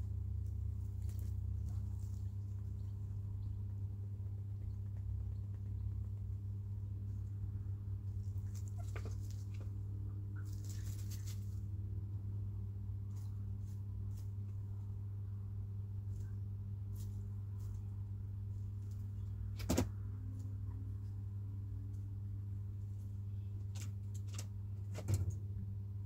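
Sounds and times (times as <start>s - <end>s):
chickens pecking and scratching: 0.0s - 12.0s, 12.9s - 15.0s, 15.9s - 20.8s
low electrical hum: 0.0s - 26.0s.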